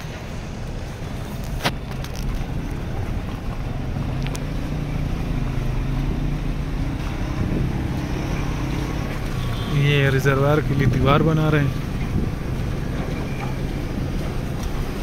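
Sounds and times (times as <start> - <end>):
car engine hum: 0.0 - 15.0
wind noise on microphone: 7.0 - 8.4, 10.8 - 15.0.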